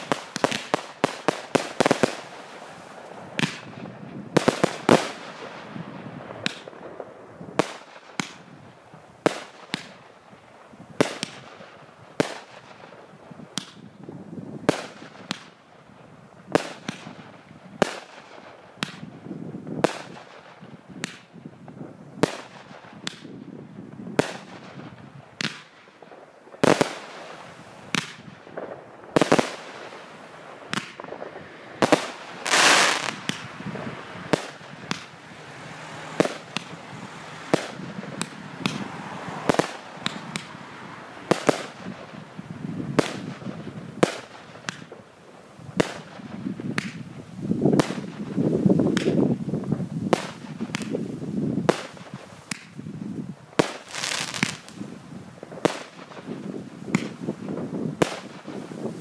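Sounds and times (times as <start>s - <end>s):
firework hiss: 0.0s - 6.7s, 26.5s - 53.0s, 53.6s - 59.0s
firework bangs: 0.0s - 10.2s, 16.5s - 53.0s, 53.6s - 59.0s.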